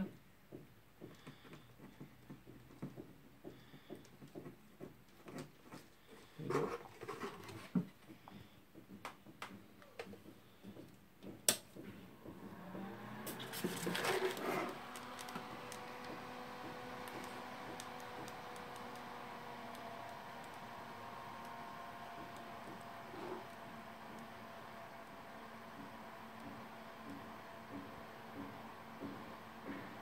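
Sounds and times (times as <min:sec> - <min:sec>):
computer fan running: 0:08.2 - 0:30.0.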